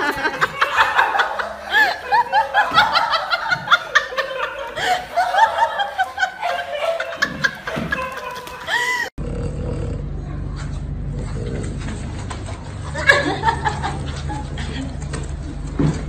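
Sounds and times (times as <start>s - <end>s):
high-pitched giggling laughter: 0.0s - 9.1s.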